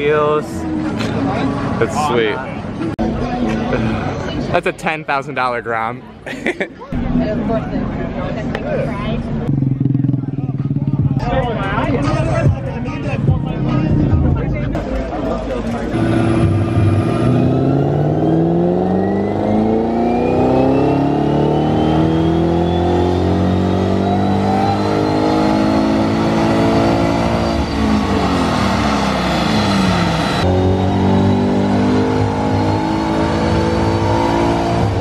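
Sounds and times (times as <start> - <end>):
supercharged car engine revving: 15.7 - 35.0.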